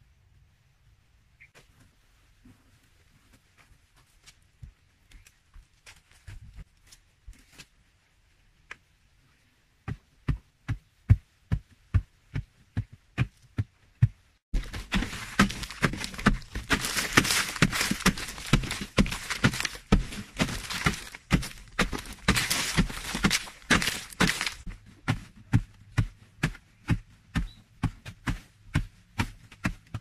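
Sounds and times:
tool striking earth wall: 9.9 - 30.0
loose soil crumbling: 14.5 - 25.2
chopping and scraping earth: 14.5 - 30.0.

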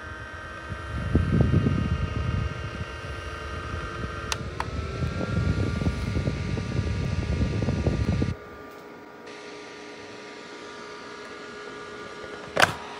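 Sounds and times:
faint motor whine: 0.0 - 12.9
fan air rushing: 0.0 - 12.9
switch clicks: 4.2 - 4.7.

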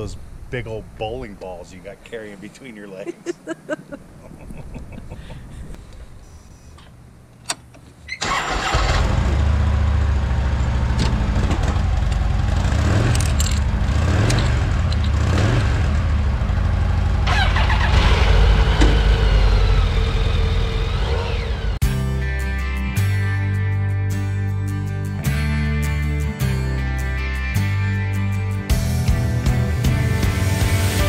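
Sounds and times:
motorcycle engine rumbling: 0.0 - 21.8.

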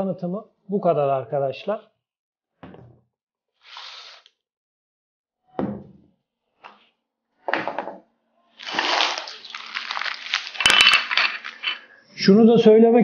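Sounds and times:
items set down on wooden table: 2.6 - 3.0, 7.5 - 8.0
crackle of fine clicks: 8.6 - 11.8
plastic bag crinkling: 8.6 - 12.0.

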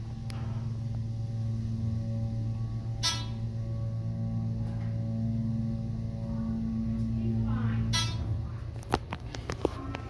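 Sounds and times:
elevator chime: 0.0 - 8.7
elevator humming: 0.0 - 10.0.

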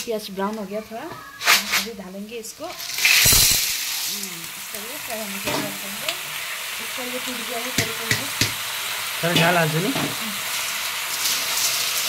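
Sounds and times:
snails sizzling in hot oil: 1.4 - 12.0.

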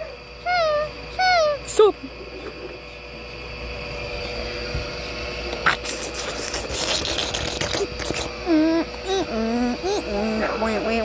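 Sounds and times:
faint hum: 0.0 - 11.0.

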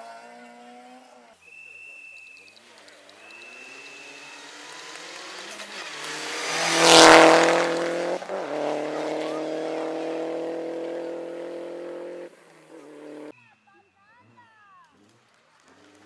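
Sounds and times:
rally car engine passing by: 2.5 - 13.3.

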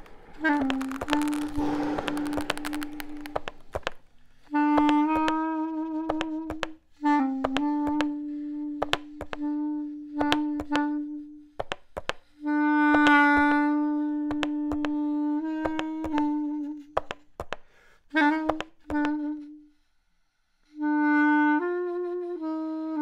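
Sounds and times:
sharp clicks: 0.0 - 4.0
reed woodwind long low notes: 0.0 - 11.6, 12.4 - 17.0, 20.7 - 23.0.

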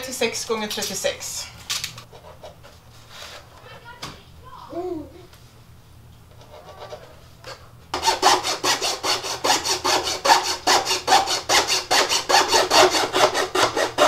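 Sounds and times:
hand saw cutting wood: 8.0 - 14.0.

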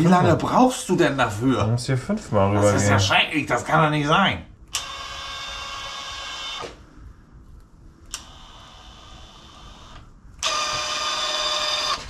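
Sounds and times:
small electric motor whining: 8.2 - 12.0.

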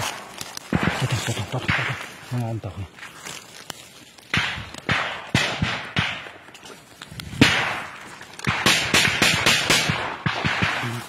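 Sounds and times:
gunshots echoing: 0.0 - 2.2, 4.3 - 6.5, 7.3 - 11.0.

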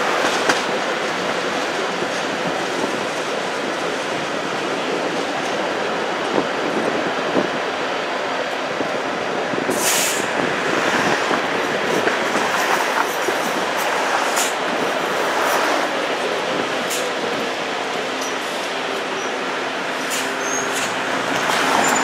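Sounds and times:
streetcar wheels and motors: 0.0 - 22.0.

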